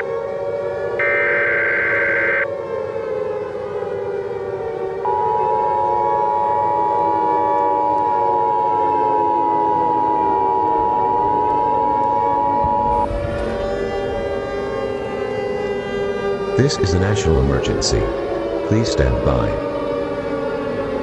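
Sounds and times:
siren wailing: 0.0s - 21.0s
digital header screech: 1.0s - 2.4s
two-tone attention signal: 1.0s - 2.4s, 5.1s - 13.0s.

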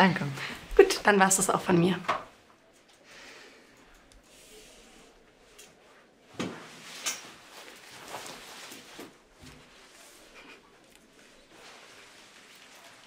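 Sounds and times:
jacket fabric rustling: 4.2s - 13.0s.

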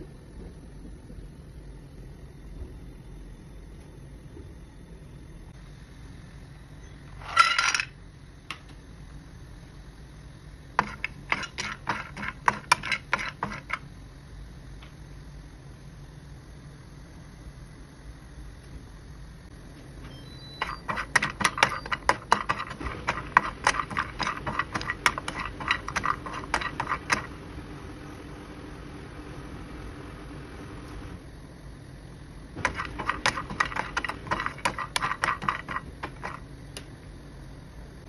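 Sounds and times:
nuts clattering in a frying pan: 7.2s - 8.0s, 20.6s - 27.3s, 32.6s - 36.4s
wooden spatula stirring: 10.8s - 13.8s, 20.6s - 27.4s, 32.6s - 36.4s.

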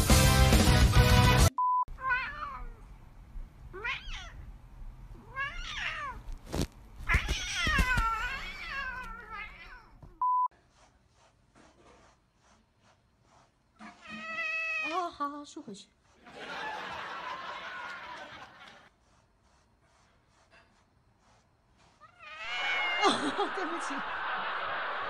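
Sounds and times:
cat meowing: 1.9s - 2.8s, 3.7s - 4.5s, 5.2s - 6.3s, 7.0s - 10.0s, 13.9s - 15.0s, 22.0s - 23.0s.

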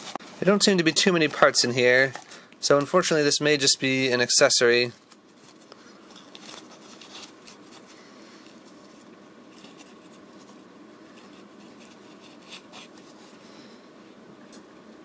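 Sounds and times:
paper wrapping rustling and crinkling: 4.8s - 13.4s.

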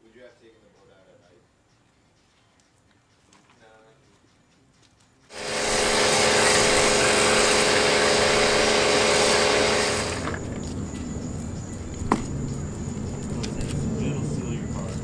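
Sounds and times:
pressure washer spray hissing: 5.3s - 10.5s
pump motor hum: 5.3s - 12.2s.

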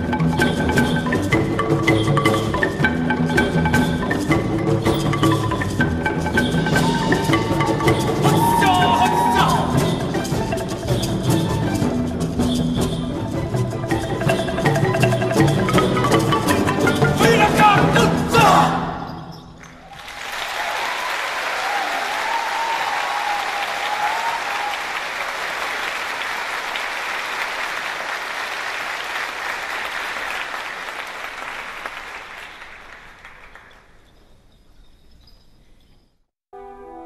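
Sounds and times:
crowd applause: 6.7s - 9.8s, 19.7s - 33.8s.

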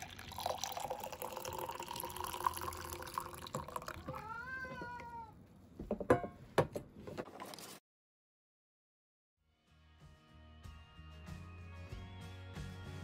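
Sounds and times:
coffee pouring into a mug: 0.0s - 4.2s
cat meowing: 3.8s - 5.4s.

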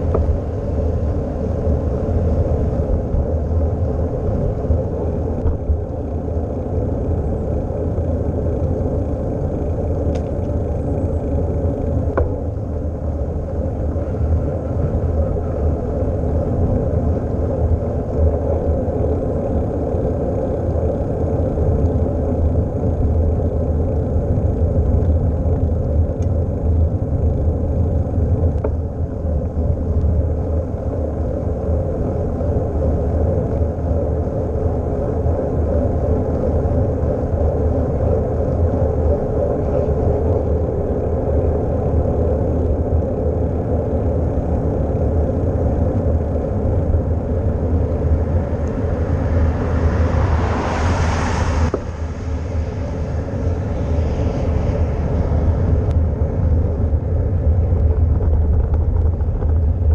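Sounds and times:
road noise: 0.0s - 59.9s
wind buffeting microphone: 0.0s - 59.9s.

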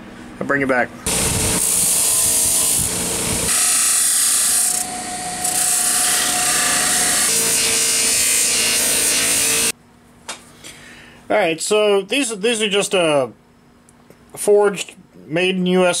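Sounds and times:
motor whine: 1.1s - 9.7s
metal grinding on sanding wheel: 1.6s - 9.7s.

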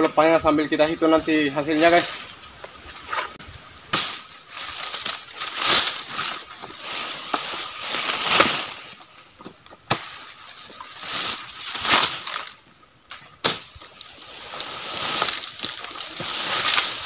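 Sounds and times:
high insect drone: 0.0s - 17.0s
dry palm fronds rustling and scraping: 1.3s - 17.0s
sharp crack: 3.9s - 6.2s, 8.0s - 8.8s, 13.4s - 13.8s.

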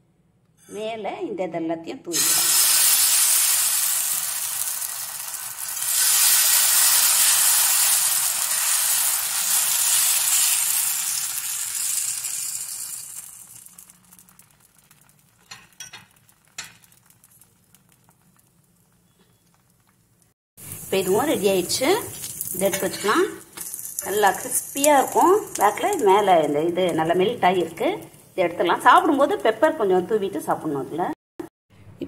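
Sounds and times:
batter sizzling on a griddle: 2.2s - 26.4s.

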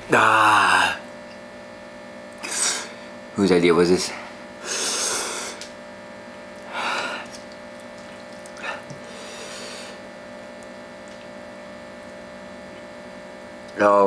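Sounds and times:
man blowing breathy huffs: 4.6s - 5.6s.

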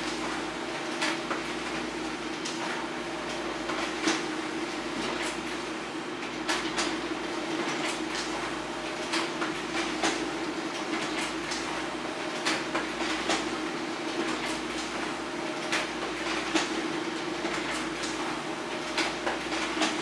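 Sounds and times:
paper feeding clicks: 0.0s - 4.3s, 6.2s - 20.0s
printer mechanical hum: 0.0s - 20.0s.

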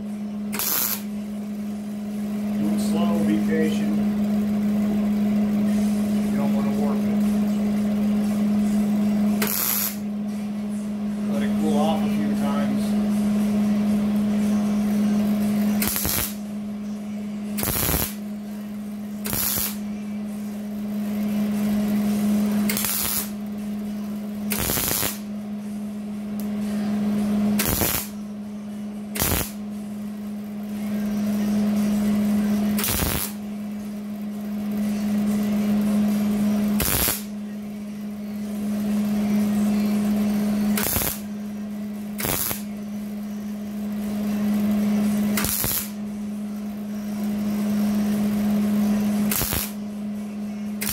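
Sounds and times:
steady hum: 0.0s - 50.9s
welding arc crackling and popping: 0.6s - 1.1s, 9.4s - 10.0s, 15.8s - 16.4s, 17.6s - 18.2s, 19.2s - 19.8s, 22.7s - 23.4s, 24.5s - 25.2s, 27.6s - 28.1s, 29.2s - 29.6s, 32.8s - 33.4s, 36.8s - 37.3s, 40.8s - 41.3s, 42.2s - 42.7s, 45.4s - 46.0s, 49.3s - 49.8s.

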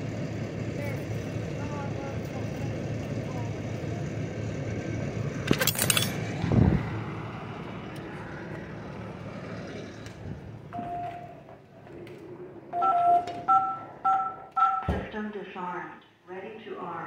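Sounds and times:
touch-tone keypad beeps: 12.8s - 15.0s.

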